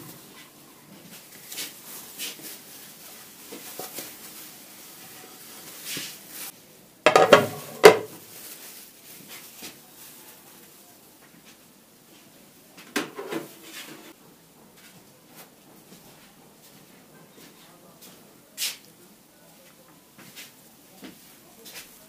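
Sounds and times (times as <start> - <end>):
ceramic plates clinking: 7.1 - 8.1
plates clattering: 7.1 - 8.2.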